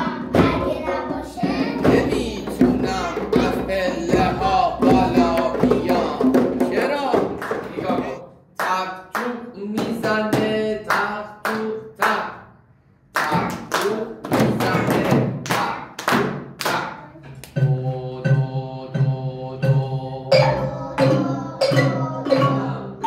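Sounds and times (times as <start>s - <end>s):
small hand drums beating: 0.0s - 8.2s, 17.4s - 23.0s
children clapping: 7.2s - 7.9s, 13.1s - 17.6s
wooden xylophones ringing: 20.3s - 23.0s.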